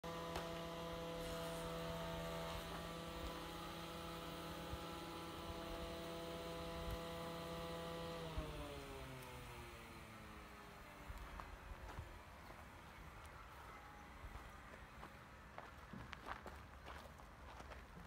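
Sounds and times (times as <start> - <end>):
pitched machine hum: 0.0 - 16.5.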